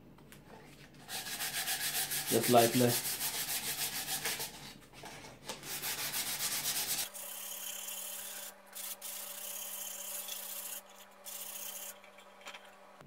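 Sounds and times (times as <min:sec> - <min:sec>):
sandpaper rubbing on wood: 0:01.1 - 0:04.7, 0:05.6 - 0:07.1.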